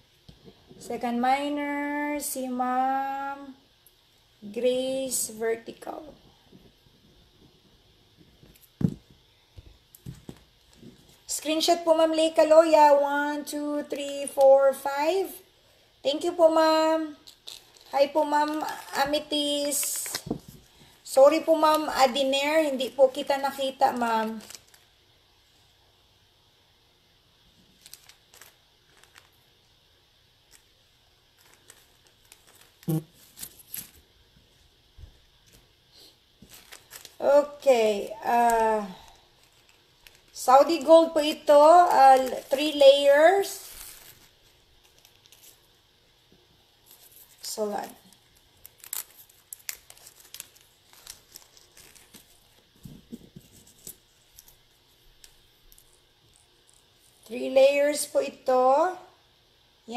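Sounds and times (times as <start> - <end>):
packaging crinkling and rustling: 17.1 - 22.2, 22.8 - 25.0, 27.5 - 29.8, 30.4 - 34.2, 36.4 - 45.8, 46.8 - 57.3.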